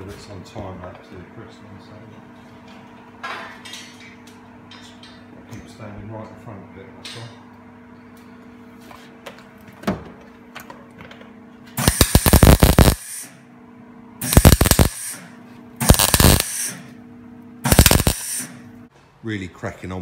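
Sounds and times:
welder arc bursts: 11.8s - 13.4s, 14.2s - 16.9s, 17.6s - 18.7s.

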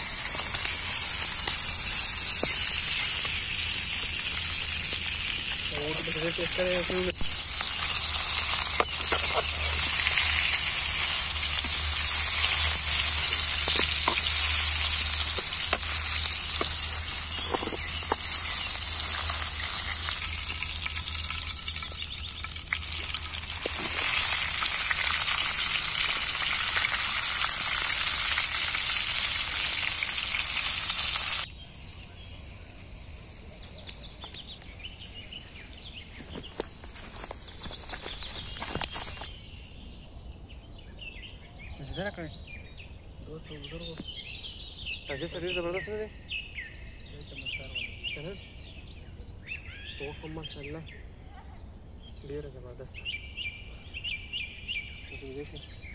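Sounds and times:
meat sizzling in oil: 0.0s - 31.5s.

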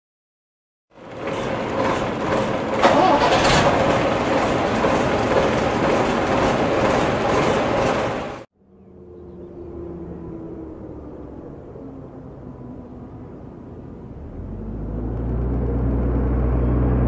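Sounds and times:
bus engine running: 0.9s - 8.5s, 13.3s - 17.0s.

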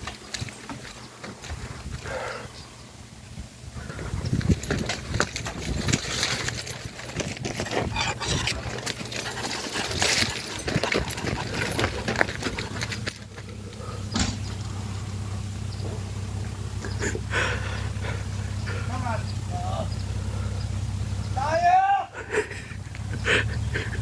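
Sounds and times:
low mechanical hum: 0.0s - 24.0s
footsteps on dry leaves: 4.3s - 21.2s.

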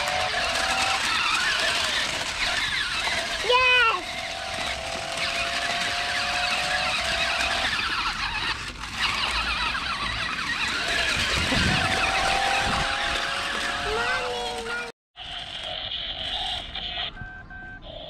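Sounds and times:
wheels crackling on gravel: 0.0s - 16.7s
toy car electric motors whining: 0.0s - 18.0s.

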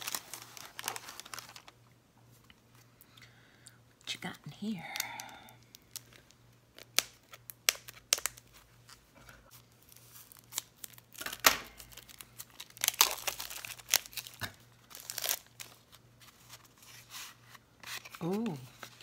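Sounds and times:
plastic being torn open: 0.0s - 1.8s, 5.8s - 8.5s, 9.8s - 15.9s
plastic wrapping crinkling: 0.0s - 1.8s, 5.0s - 17.1s.

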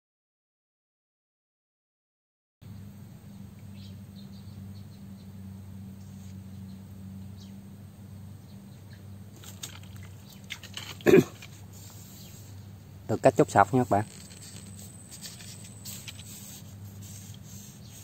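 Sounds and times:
steady low hum: 2.6s - 18.0s
faint bird chirps: 3.6s - 5.4s
rustling in weeds: 9.4s - 12.6s, 13.7s - 18.0s.

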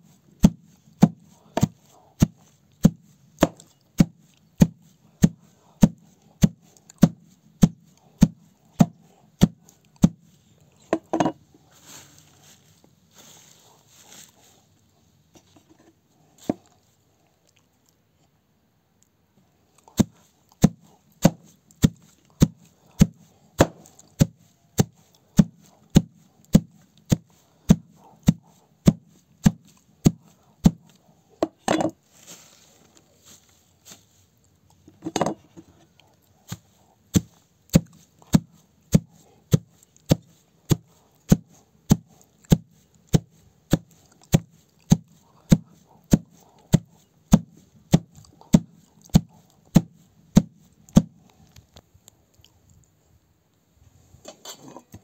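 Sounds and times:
knife cutting stems: 0.4s - 10.4s, 20.0s - 31.6s, 36.5s - 51.2s.

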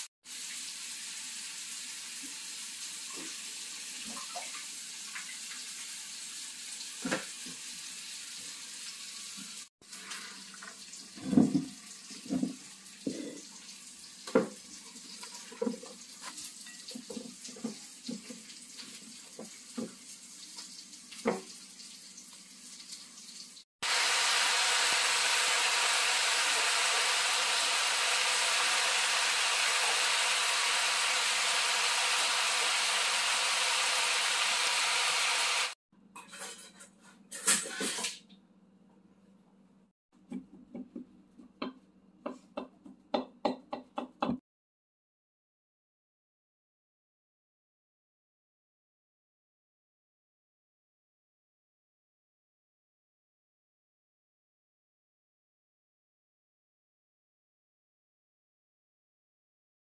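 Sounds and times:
greens sizzling in a hot pan: 22.1s - 35.8s
utensil scraping a pan: 36.2s - 38.2s.

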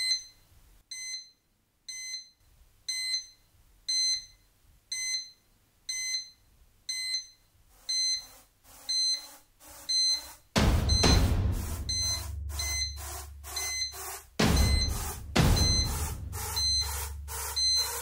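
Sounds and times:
short high electronic beeps: 7.9s - 18.0s.

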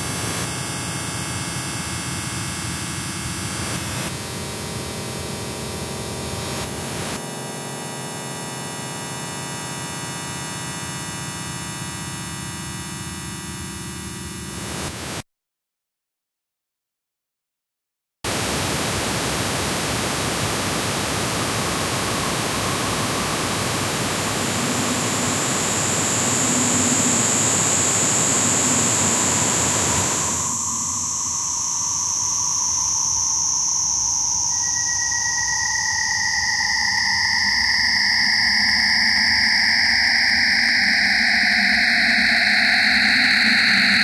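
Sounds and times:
high whistling tone sliding down: 21.6s - 44.0s
lower tone: 21.6s - 44.0s.

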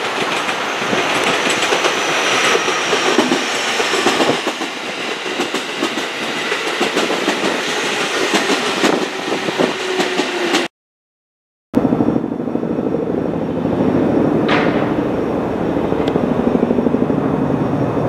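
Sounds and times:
faint high train whine: 0.0s - 10.6s, 11.8s - 18.0s
train wheels clicking over rails: 0.0s - 10.7s.

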